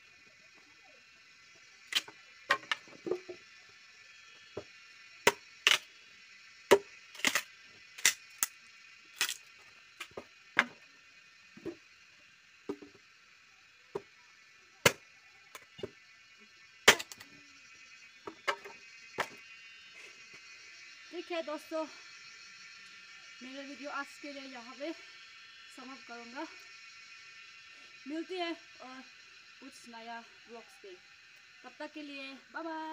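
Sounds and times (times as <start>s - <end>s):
axe chopping firewood: 5.3s - 5.8s, 6.7s - 7.4s, 14.8s - 15.0s, 16.9s - 17.2s.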